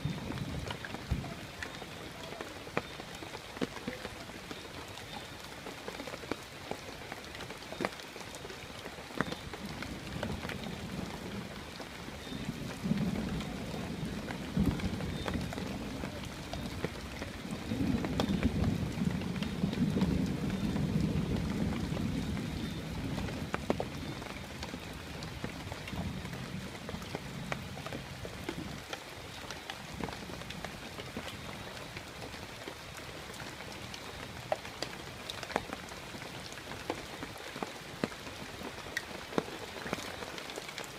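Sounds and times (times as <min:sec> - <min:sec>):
low rumble of thunder: 0:00.0 - 0:01.6, 0:09.5 - 0:28.9
raindrops striking close by: 0:00.0 - 0:40.9
steady rain: 0:00.0 - 0:40.9.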